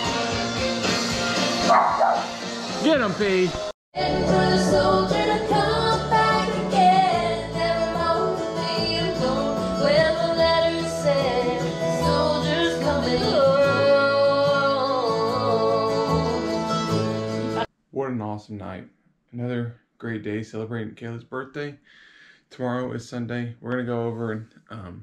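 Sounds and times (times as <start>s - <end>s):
backing track with guitar: 0.0s - 17.7s
woman singing karaoke: 4.0s - 17.6s.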